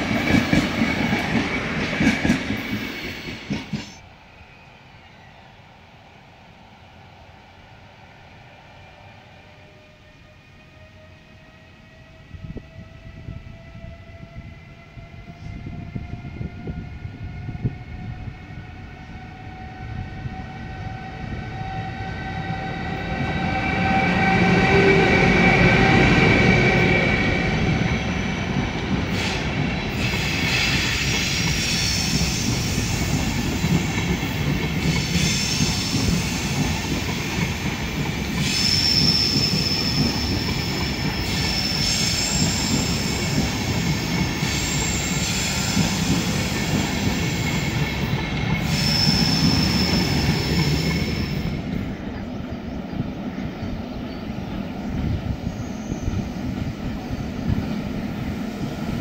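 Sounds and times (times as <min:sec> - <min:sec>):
train wheels rumbling: 0:00.0 - 0:04.1, 0:08.9 - 0:59.0
electric locomotive whine: 0:00.0 - 0:59.0
high wheel squeal: 0:38.3 - 0:43.6, 0:44.2 - 0:47.8, 0:48.6 - 0:51.5.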